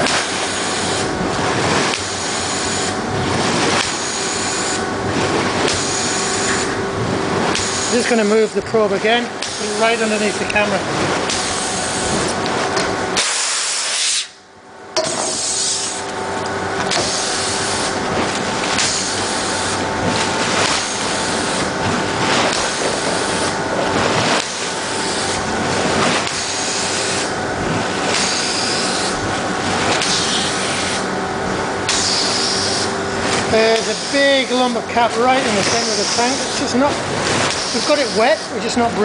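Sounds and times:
bubbles bursting with splashing: 0:00.0 - 0:13.8, 0:15.0 - 0:39.0
rush of compressed air: 0:13.2 - 0:14.4.

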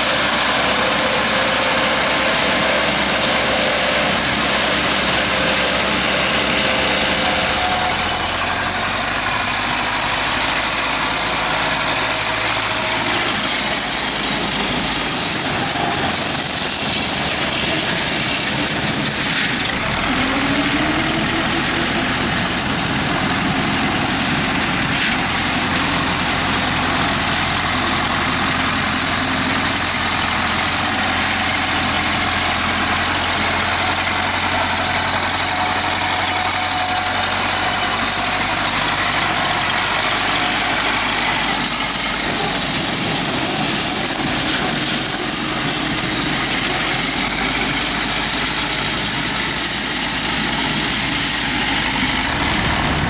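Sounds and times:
rotary mower cutting grass: 0:00.0 - 0:53.0
tractor engine running under load: 0:00.0 - 0:53.0.

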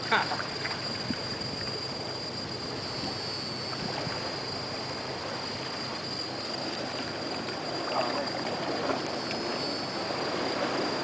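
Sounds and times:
crickets trilling: 0:00.0 - 0:11.0
waves lapping over rocks: 0:05.2 - 0:11.0.

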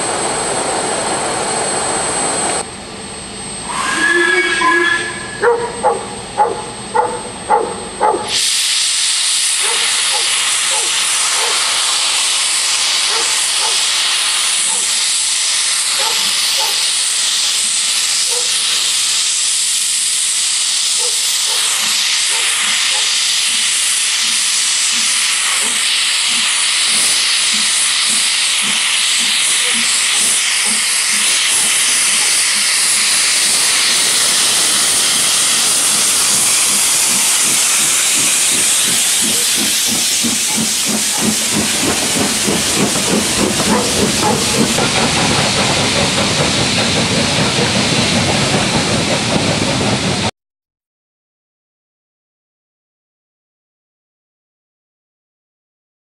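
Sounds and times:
loud hiss of steam: 0:03.6 - 0:50.3
locomotive exhaust beats: 0:21.7 - 0:50.3.

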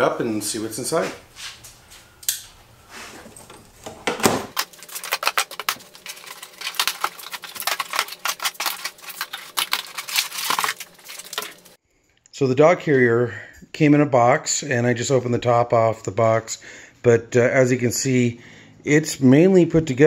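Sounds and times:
knife slitting packing tape: 0:04.6 - 0:11.7.

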